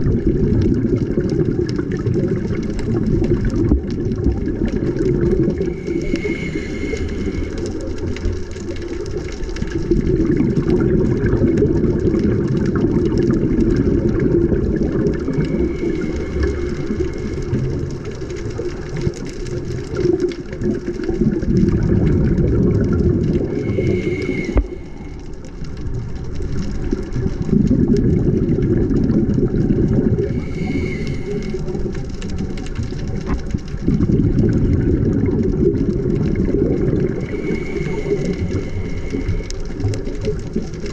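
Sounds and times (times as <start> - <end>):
exhaled bubbles gurgling: 0.0 - 40.9
regulator hissing inhale: 5.5 - 8.4, 15.2 - 17.7, 23.4 - 25.5, 30.1 - 32.0, 37.1 - 40.3.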